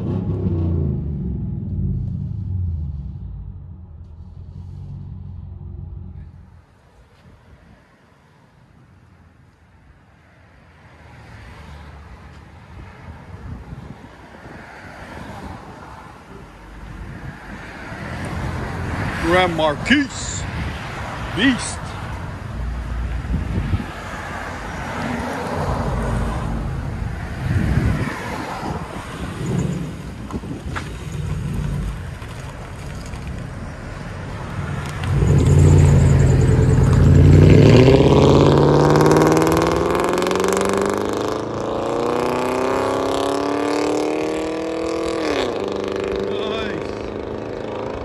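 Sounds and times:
car exhaust accelerating: 0:00.0 - 0:07.0, 0:22.4 - 0:48.0.

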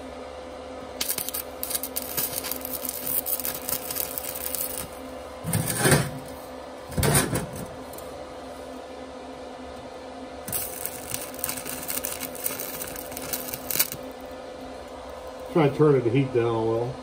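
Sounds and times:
steady hum: 0:00.0 - 0:17.0
welding arc crackling: 0:00.9 - 0:05.1, 0:10.4 - 0:15.6
arc sputtering bursts: 0:01.0 - 0:05.0, 0:10.5 - 0:14.1.

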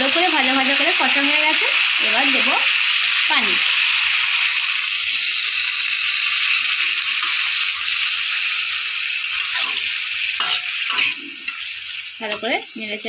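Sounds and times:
food sizzling in hot oil: 0:00.0 - 0:13.0
spatula stirring in a pan: 0:06.7 - 0:12.6.

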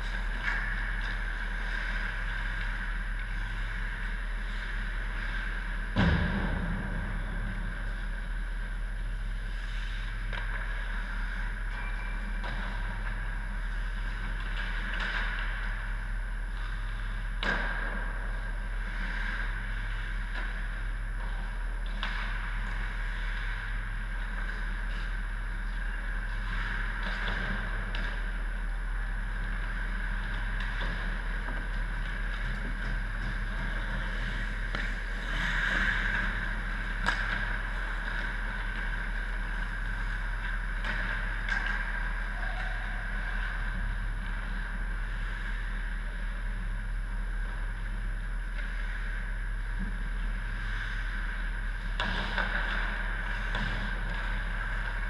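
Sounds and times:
ice rink hum and hiss: 0:00.0 - 0:55.0
distant clicks of sticks and pucks: 0:34.6 - 0:43.6.

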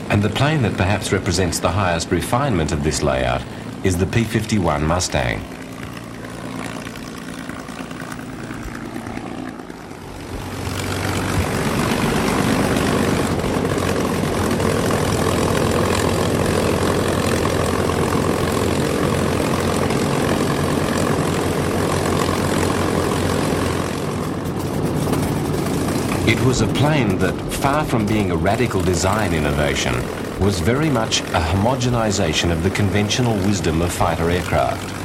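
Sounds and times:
piston aircraft engine and propeller: 0:00.0 - 0:35.0.

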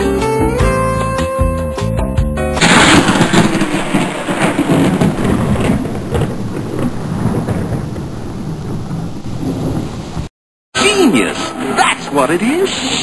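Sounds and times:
steady rain: 0:02.6 - 0:10.3
thunder rolling: 0:02.6 - 0:10.3.

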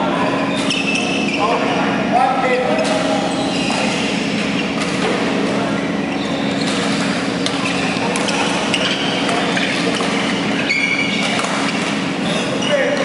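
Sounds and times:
steady low hum: 0:00.0 - 0:13.0
shoe squeaking on court floor: 0:00.2 - 0:01.8, 0:02.4 - 0:13.0
racket hitting shuttlecock: 0:11.2 - 0:12.0.

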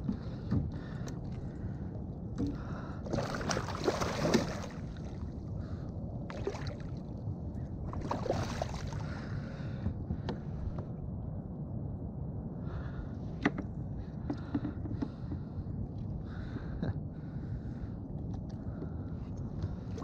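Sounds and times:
water moving around kayak: 0:00.0 - 0:10.9, 0:17.6 - 0:20.0
wind rumble on microphone: 0:00.0 - 0:20.0.

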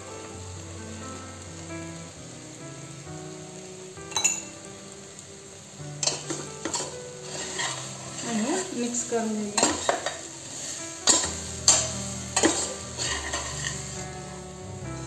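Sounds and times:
food sizzling in a pot: 0:00.0 - 0:15.0
steel spoon scraping pot: 0:06.0 - 0:08.7, 0:09.6 - 0:10.3, 0:11.0 - 0:14.0.

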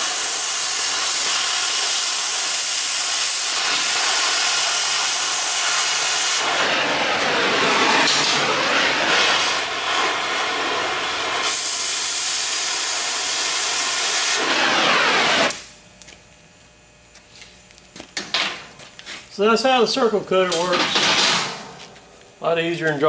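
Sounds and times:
cutting torch hissing: 0:00.0 - 0:15.7.

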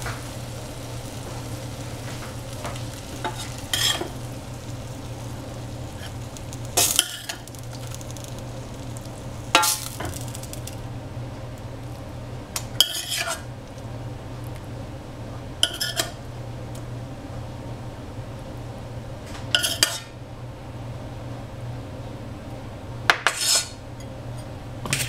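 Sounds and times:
steady low hum: 0:00.0 - 0:25.0
utensil scraping and clinking on pan: 0:02.1 - 0:04.2, 0:05.9 - 0:08.4, 0:12.8 - 0:13.5, 0:15.6 - 0:16.2, 0:19.6 - 0:20.1, 0:23.2 - 0:23.8.

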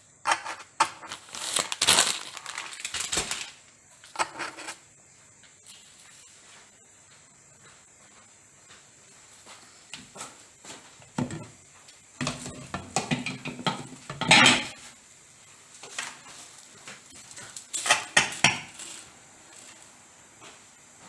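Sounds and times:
dishes and cutlery clinking: 0:13.0 - 0:14.8, 0:17.7 - 0:18.8.

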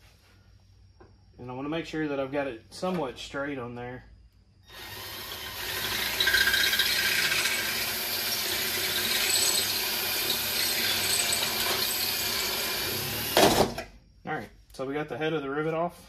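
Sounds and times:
power drill boring into metal: 0:04.7 - 0:13.6.

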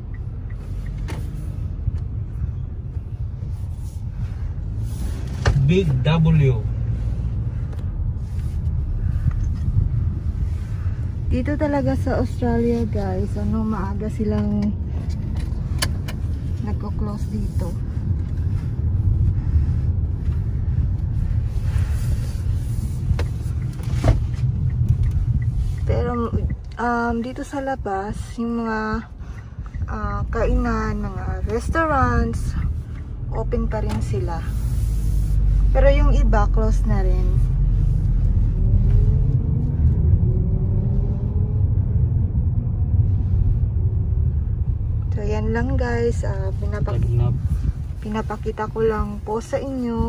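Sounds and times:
car cabin road rumble: 0:00.0 - 0:50.0.

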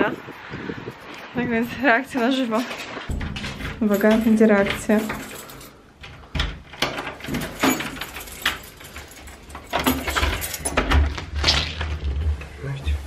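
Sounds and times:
lock and handle rattling: 0:02.7 - 0:12.0
keys jangling: 0:03.1 - 0:11.0.

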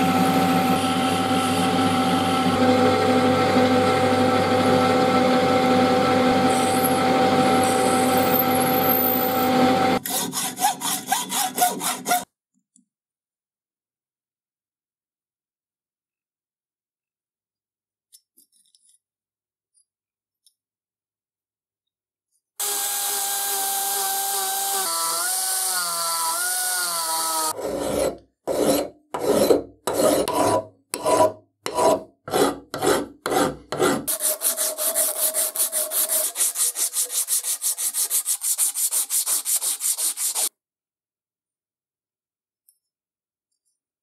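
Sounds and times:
small power tool running: 0:00.0 - 0:10.0, 0:22.6 - 0:27.6
hand file strokes on metal: 0:10.0 - 0:12.3, 0:27.5 - 0:40.5
sanding pad rubbing metal: 0:10.0 - 0:12.3, 0:27.6 - 0:40.5.

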